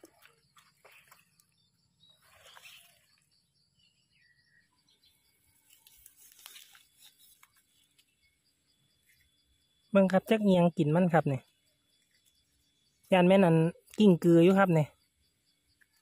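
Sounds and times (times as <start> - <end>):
rustling and crunching dry leaves: 2.1 - 3.2, 5.5 - 8.1.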